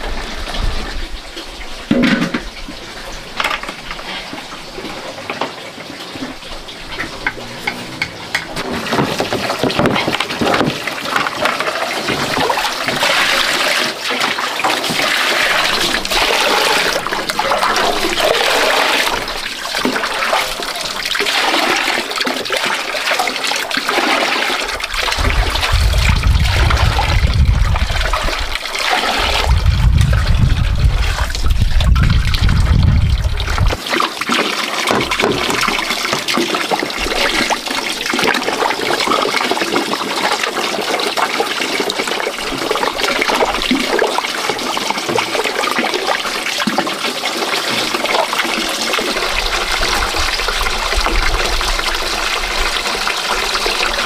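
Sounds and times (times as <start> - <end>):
water running and splashing: 0.0 - 54.0
low rumble: 24.8 - 33.8.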